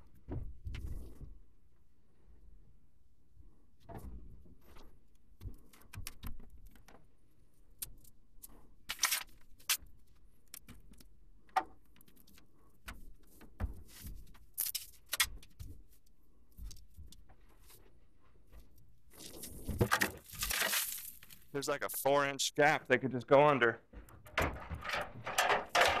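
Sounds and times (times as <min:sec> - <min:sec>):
knocks and scrapes: 0:00.1 - 0:01.4, 0:10.6 - 0:21.5, 0:23.9 - 0:26.0
insulation rustling and crackling: 0:04.0 - 0:22.2.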